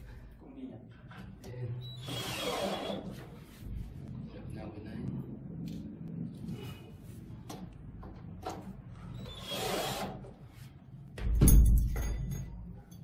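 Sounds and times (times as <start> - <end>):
cordless drill driving a screw: 2.0 - 3.0, 9.2 - 10.2.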